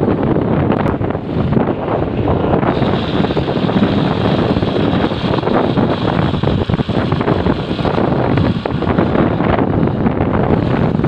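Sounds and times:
wind buffeting microphone: 0:00.0 - 0:11.0
motorcycle riding on wet road: 0:02.2 - 0:11.0.

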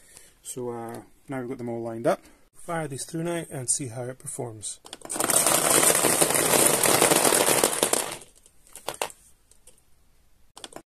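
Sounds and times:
metal marbles clattering: 0:05.0 - 0:09.2.

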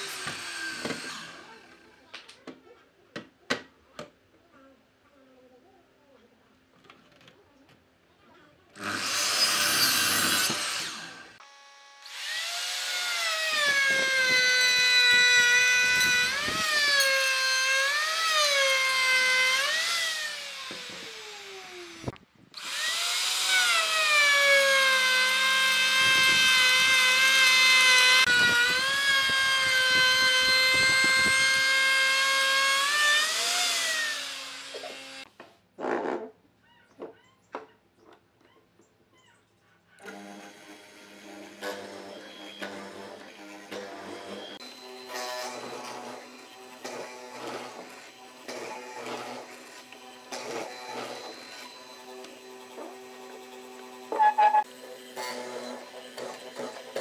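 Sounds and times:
electric router whining: 0:00.0 - 0:01.9, 0:08.8 - 0:35.3, 0:40.0 - 0:57.0
miter saw cutting wood: 0:00.0 - 0:02.0, 0:08.8 - 0:35.3, 0:40.0 - 0:57.0.

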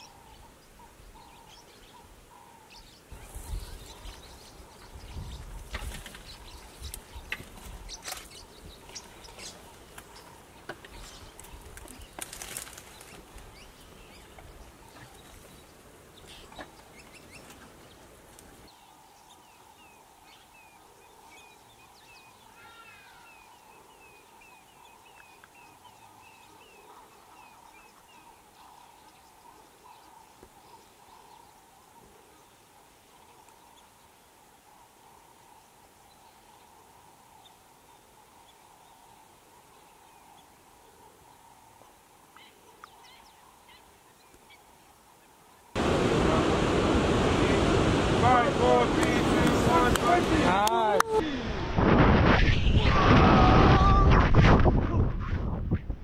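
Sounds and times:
leaves rustling: 0:03.0 - 0:20.1, 0:29.4 - 0:55.4
twigs snapping: 0:11.4 - 0:13.4.

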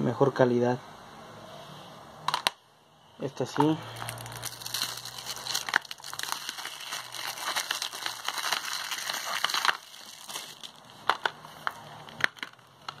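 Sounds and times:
plastic wrap crinkling and tearing: 0:03.9 - 0:13.0.

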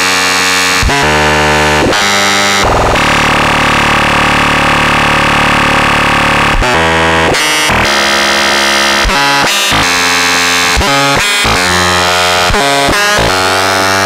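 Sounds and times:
synthesizer tones with bright noise: 0:01.5 - 0:06.1.

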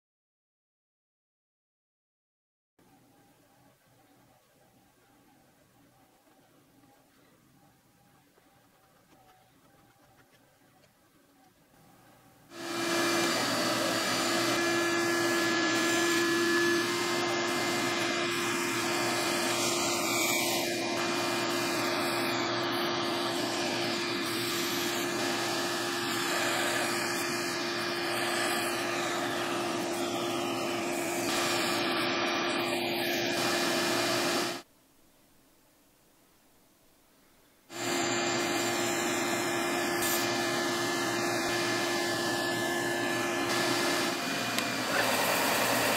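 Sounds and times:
band saw motor hum: 0:12.5 - 0:34.6, 0:37.7 - 0:45.9
saw blade whirring: 0:12.5 - 0:34.6, 0:37.7 - 0:45.9.

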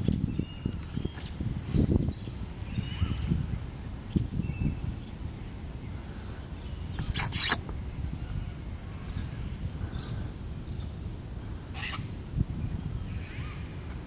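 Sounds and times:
cockatoo harsh screech: 0:07.0 - 0:07.6.

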